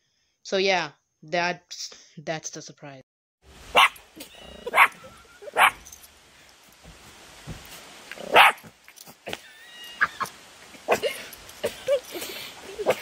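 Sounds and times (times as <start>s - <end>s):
small dog barking: 3.7s - 4.0s, 4.6s - 5.8s, 8.2s - 8.7s.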